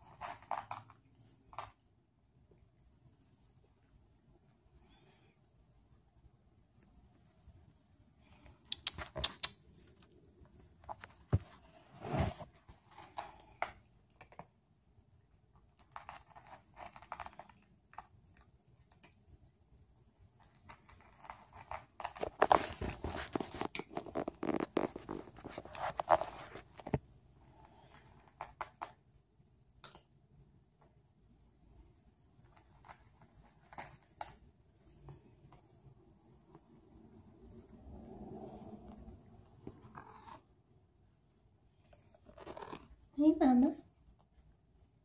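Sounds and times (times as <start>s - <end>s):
sharp clicks of claws: 6.8s - 10.0s.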